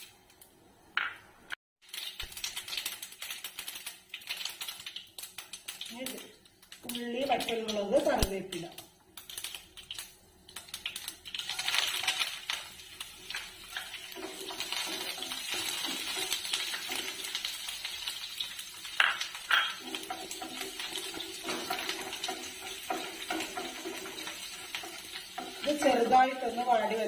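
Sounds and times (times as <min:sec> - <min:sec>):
food sizzling in hot oil: 0:01.8 - 0:27.0
spatula scraping pan: 0:13.7 - 0:17.5, 0:19.5 - 0:26.6
spatula knocking on pan: 0:19.0 - 0:25.7.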